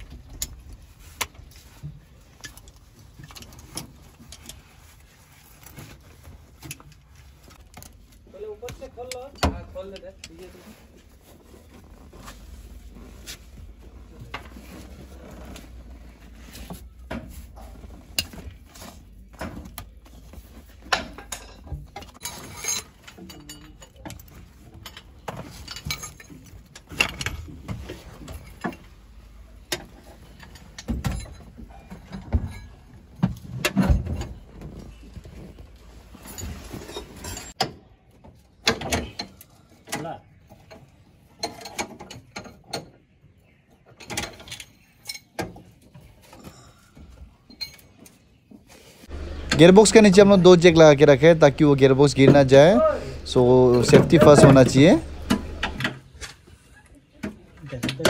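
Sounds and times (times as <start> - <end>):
metal tools clinking and knocking: 20.8 - 34.8, 36.1 - 37.7, 43.9 - 45.7, 47.4 - 48.2, 49.1 - 56.4.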